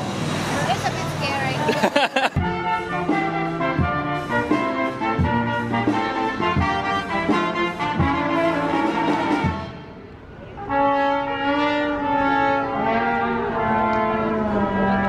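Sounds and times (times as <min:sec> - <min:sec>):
brass band playing: 0:00.9 - 0:15.0.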